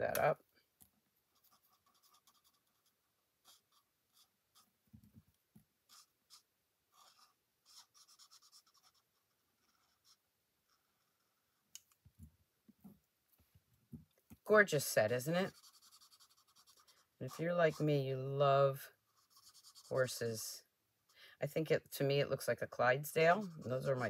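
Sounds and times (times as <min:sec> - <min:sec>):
marker scratching on cardstock: 0:01.3 - 0:04.7, 0:05.9 - 0:11.4, 0:15.1 - 0:18.1, 0:19.1 - 0:20.2, 0:23.2 - 0:24.0.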